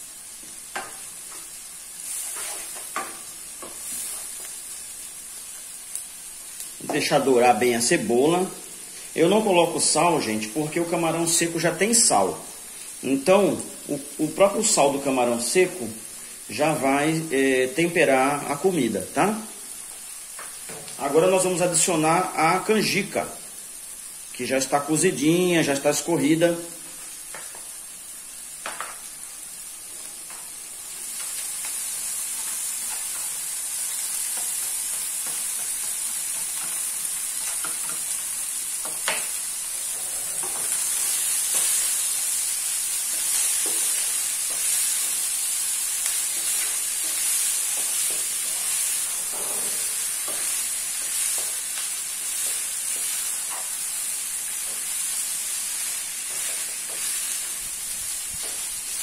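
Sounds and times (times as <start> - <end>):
food sizzling in hot oil: 0.0 - 59.0
wooden spoon scraping a pan: 0.8 - 4.6, 38.8 - 42.3, 42.9 - 53.8.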